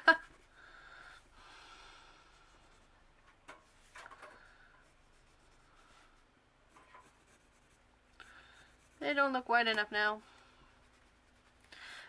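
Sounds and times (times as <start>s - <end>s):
pencil scratching on paper: 0.1s - 0.6s, 2.3s - 3.0s, 3.7s - 10.0s, 10.7s - 11.7s.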